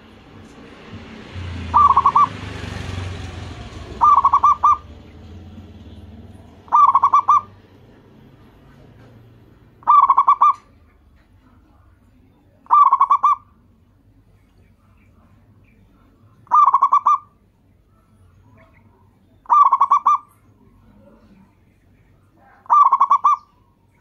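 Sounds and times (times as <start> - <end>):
dove cooing: 1.6 - 5.6, 6.5 - 8.4, 9.7 - 11.8, 12.6 - 13.6, 16.4 - 17.4, 18.5 - 21.6, 22.2 - 23.8.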